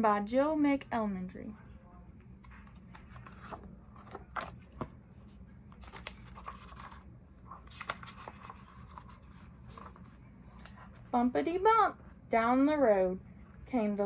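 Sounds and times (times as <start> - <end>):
book cover and pages clicking: 2.4 - 4.9, 5.7 - 10.8
paper pages rustling: 2.4 - 11.1.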